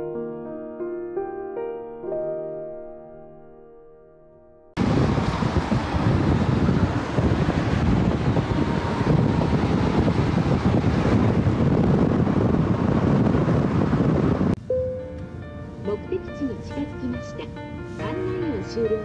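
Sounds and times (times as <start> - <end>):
wind buffeting microphone: 4.8 - 14.6
car road noise: 4.8 - 16.8.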